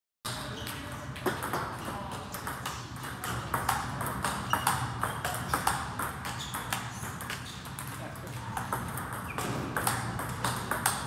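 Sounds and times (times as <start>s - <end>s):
table tennis ball clicking: 2.4s - 11.0s.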